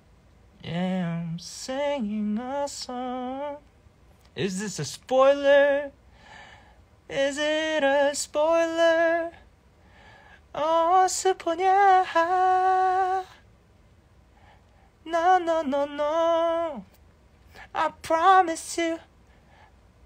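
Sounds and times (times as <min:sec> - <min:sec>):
man singing unaccompanied: 0:00.6 - 0:03.7, 0:04.4 - 0:06.0, 0:07.0 - 0:09.5, 0:10.5 - 0:13.4, 0:15.0 - 0:17.0, 0:17.6 - 0:19.2.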